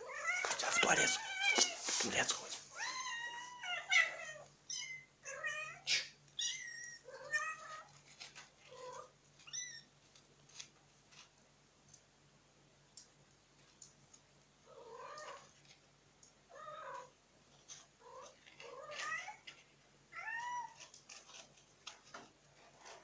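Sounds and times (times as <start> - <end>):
faint clicks: 12.9 - 14.3.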